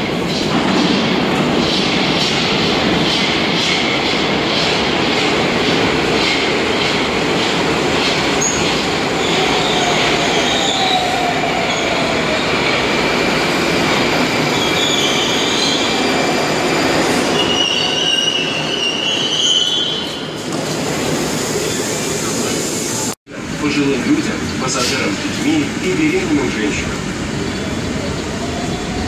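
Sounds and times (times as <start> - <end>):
metro train wheels rumbling: 0.0 - 29.0
high brake squeal: 14.4 - 20.3.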